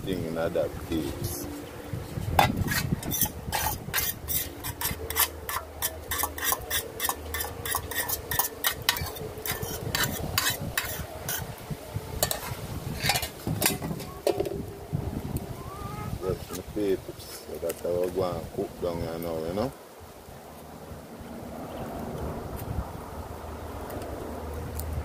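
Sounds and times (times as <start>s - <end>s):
fork clinking and scraping pot: 2.4s - 11.4s, 12.2s - 14.4s.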